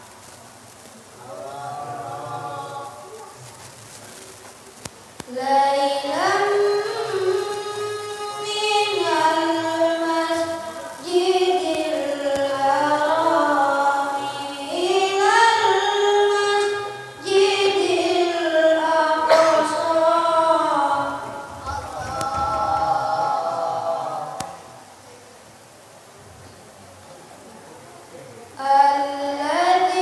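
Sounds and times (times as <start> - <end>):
boy reciting melodically: 1.1 - 3.6, 5.2 - 25.0, 28.4 - 30.0.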